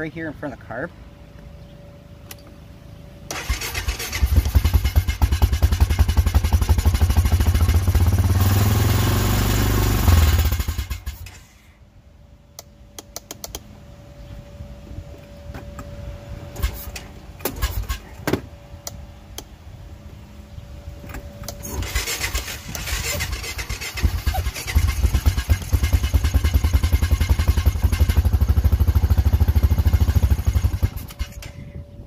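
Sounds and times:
engine chugging: 3.3 - 11.4, 21.6 - 31.6
electric starter whirring: 3.3 - 11.6, 21.4 - 31.6.

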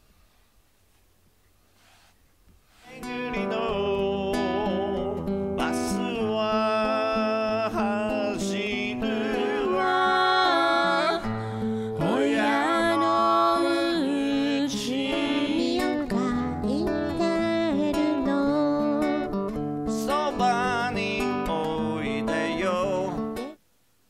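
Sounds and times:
acoustic guitar: 1.8 - 23.6
man singing into microphone: 2.9 - 11.2, 12.0 - 16.5, 20.0 - 23.4.

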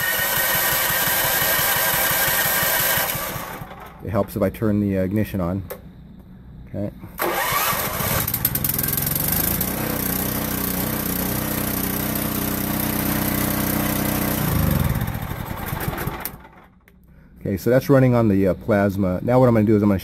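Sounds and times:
portable generator running: 0.0 - 4.5, 7.2 - 16.9.

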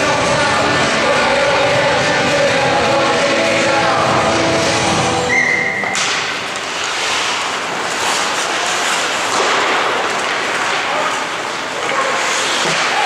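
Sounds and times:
arena music over sound system: 0.0 - 6.0.

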